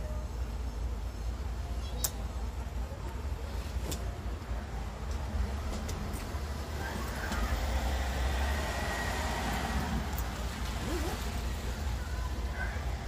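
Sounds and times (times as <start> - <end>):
car driving past: 7.3 - 11.3.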